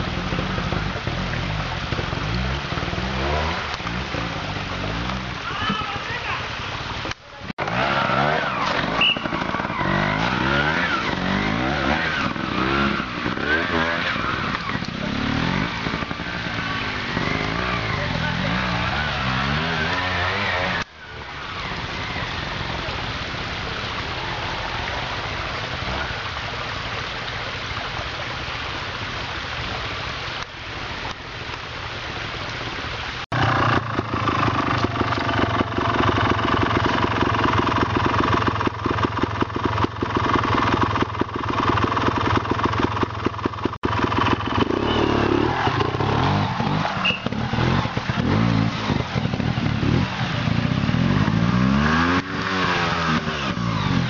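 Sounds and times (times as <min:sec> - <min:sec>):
motorcycle engine revving: 0:00.0 - 0:06.2, 0:07.5 - 0:22.9, 0:33.2 - 0:54.0.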